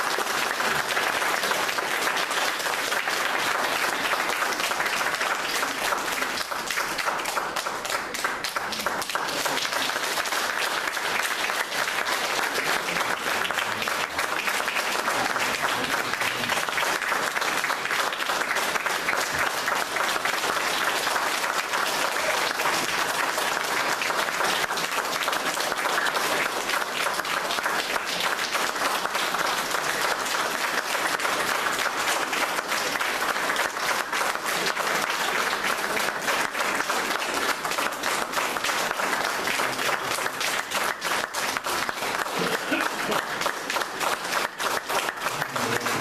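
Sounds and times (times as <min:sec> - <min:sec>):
audience applauding: 0:00.0 - 0:46.0.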